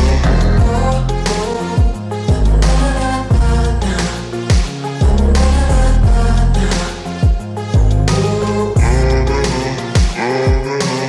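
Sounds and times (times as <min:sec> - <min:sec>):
bass kick drum beat: 0:00.0 - 0:06.5, 0:07.2 - 0:09.4.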